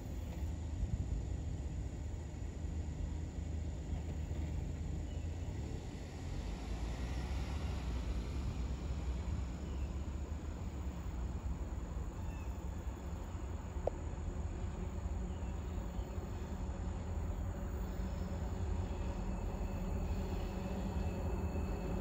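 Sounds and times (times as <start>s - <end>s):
low outdoor rumble: 0.0s - 22.0s
distant train approaching: 1.9s - 22.0s
faint steady tones: 7.7s - 22.0s
insects chirping: 9.6s - 22.0s.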